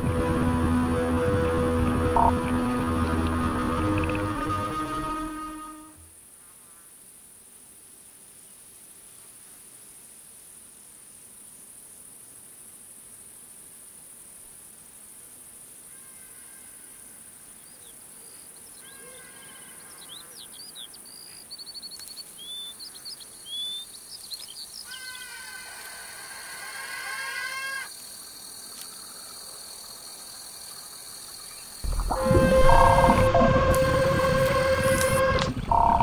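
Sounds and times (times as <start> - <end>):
layered tone: 0.0 - 6.0, 31.8 - 36.0
high insect hiss: 3.9 - 36.0.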